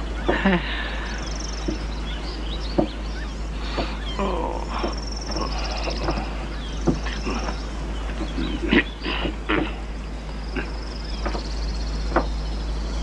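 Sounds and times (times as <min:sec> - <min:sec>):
animal trills and chirps: 0:00.0 - 0:13.0
steady low hum: 0:00.0 - 0:13.0
soft knocks: 0:01.6 - 0:01.9, 0:02.7 - 0:03.0, 0:03.7 - 0:04.0, 0:04.7 - 0:08.4, 0:10.6 - 0:11.5, 0:12.1 - 0:12.4.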